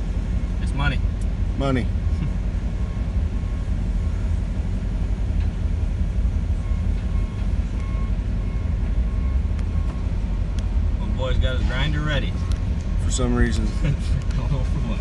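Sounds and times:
low engine rumble: 0.0 - 15.0.

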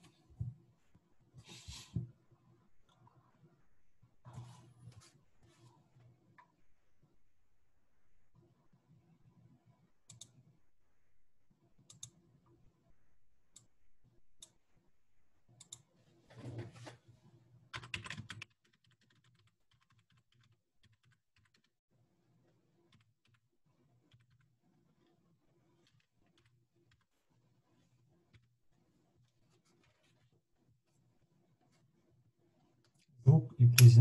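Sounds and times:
computer keyboard typing: 17.7 - 21.7, 24.1 - 24.5.

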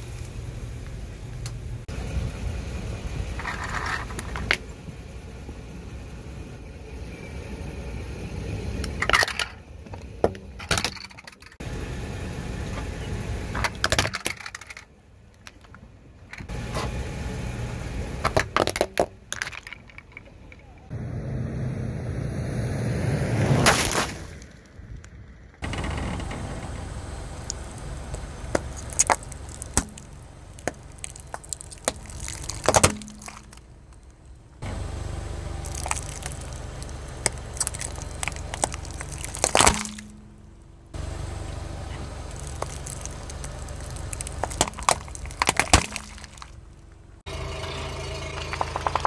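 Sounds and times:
plastic tubs cracking under tyre: 8.8 - 11.6, 13.5 - 16.5, 18.2 - 20.9, 23.6 - 26.0, 27.4 - 34.4, 35.6 - 40.5, 42.1 - 47.0
plastic tubs bursting: 28.5 - 33.7, 42.3 - 46.6.

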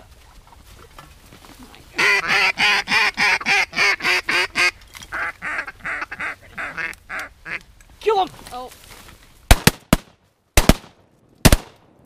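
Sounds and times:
duck call quacks: 2.0 - 7.6.

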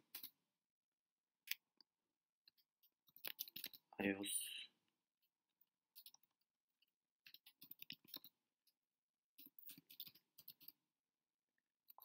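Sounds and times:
typing on computer keyboard: 3.1 - 3.8, 6.0 - 6.3, 7.2 - 8.4, 9.4 - 10.8.

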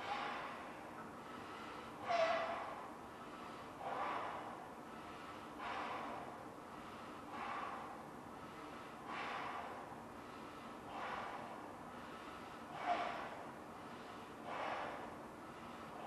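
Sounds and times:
heavy breaths: 0.0 - 16.0.

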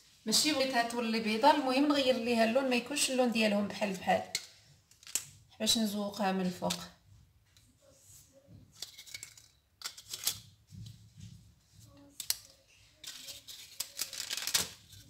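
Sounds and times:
parchment paper rustling: 6.2 - 15.0
paper cases crinkling: 13.0 - 15.0.

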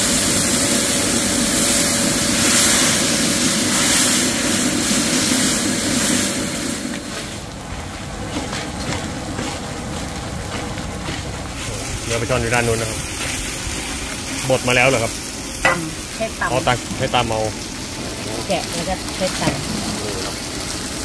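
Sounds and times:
gas burner hiss and rumble: 0.0 - 21.0
paste frying in oil: 0.0 - 21.0.

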